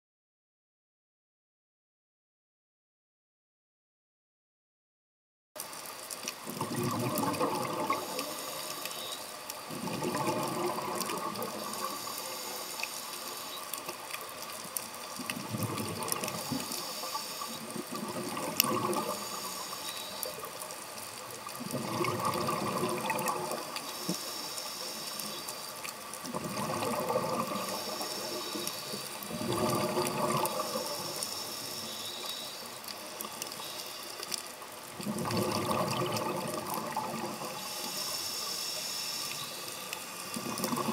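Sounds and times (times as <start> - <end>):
exhaust bubbles gurgling underwater: 6.3 - 40.9
steady regulator hiss: 7.7 - 15.2, 16.0 - 21.5, 22.5 - 34.8, 37.0 - 40.9.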